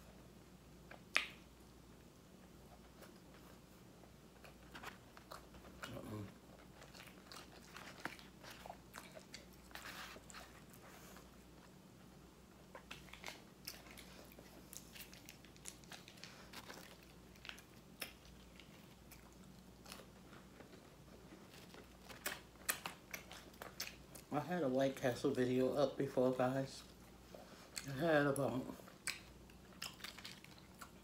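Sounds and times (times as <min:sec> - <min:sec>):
person chewing food: 0:00.8 - 0:24.3, 0:26.8 - 0:31.0
wet smacks: 0:00.9 - 0:01.5.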